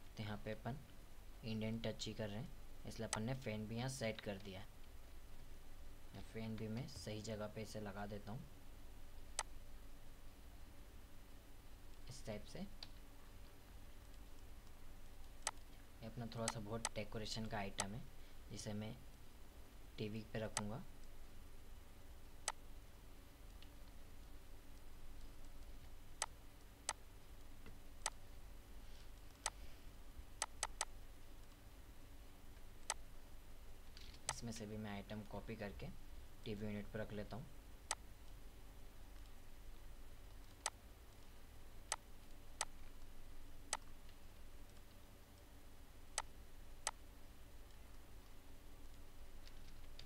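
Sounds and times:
faint low hum: 0.0 - 50.0
computer mouse clicking: 30.4 - 31.6, 40.3 - 41.3, 43.7 - 45.5.

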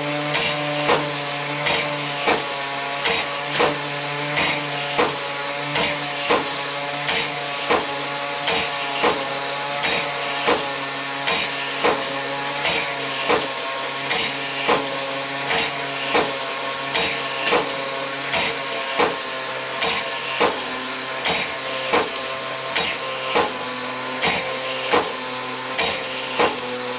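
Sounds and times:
mechanism whirring: 0.0 - 26.9
cymbals clashing: 0.3 - 0.9, 1.6 - 2.3, 3.0 - 3.6, 4.4 - 5.0, 5.8 - 6.2, 7.1 - 7.7, 8.5 - 9.0, 9.8 - 10.4, 11.3 - 11.9, 12.6 - 13.3, 14.1 - 14.7, 15.5 - 16.1, 16.9 - 17.5, 18.3 - 19.0, 19.8 - 20.4, 21.2 - 21.9, 22.8 - 23.4, 24.2 - 25.0, 25.8 - 26.4.

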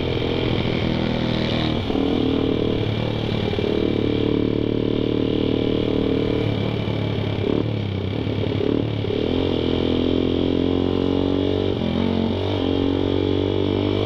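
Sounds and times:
motorcycle engine running: 0.0 - 14.0.

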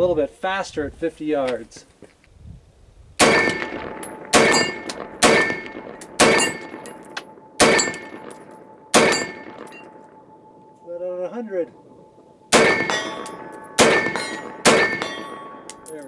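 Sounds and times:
rifle shots: 3.2 - 9.8, 12.5 - 15.7
steel target plate ringing: 3.2 - 16.0.

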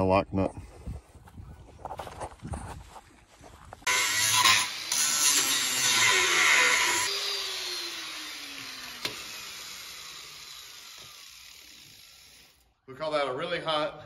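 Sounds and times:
power grinder grinding metal: 3.8 - 12.7.

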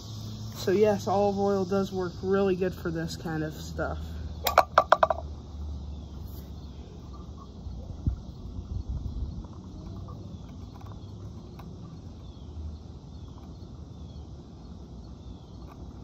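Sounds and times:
low rumble on microphone: 6.3 - 12.4.

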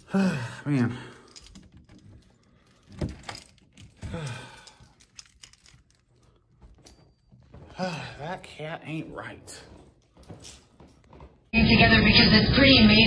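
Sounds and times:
person sighing: 0.0 - 1.4, 4.0 - 5.0, 7.6 - 8.4
keys jangling: 1.1 - 8.0, 10.0 - 11.1
clothes and bag rustling: 1.3 - 11.5.

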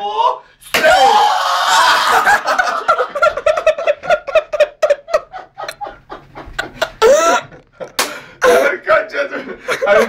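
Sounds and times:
man laughing hard: 1.9 - 8.7.

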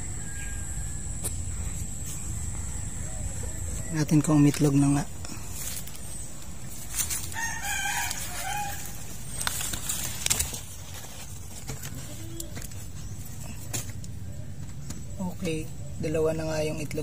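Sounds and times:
rooster crowing: 0.0 - 1.2, 2.4 - 4.2, 7.1 - 9.2.

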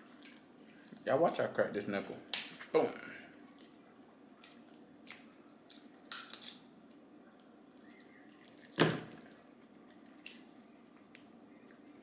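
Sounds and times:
crab shells cracking: 4.4 - 6.6, 9.7 - 11.9.

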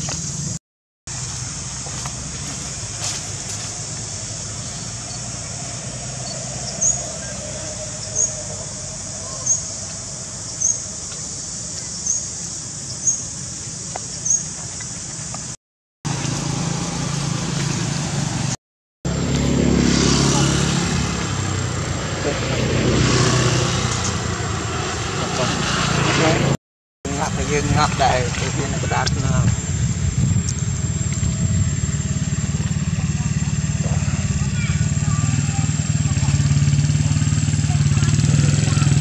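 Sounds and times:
steady high drone: 1.2 - 11.8, 27.1 - 39.0
steady low hum: 27.1 - 39.0.

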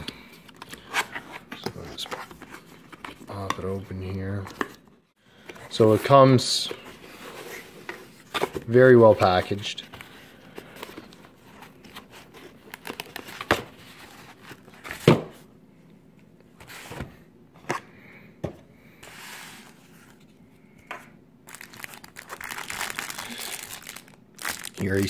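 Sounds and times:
plastic wrap crinkling: 21.5 - 25.0.

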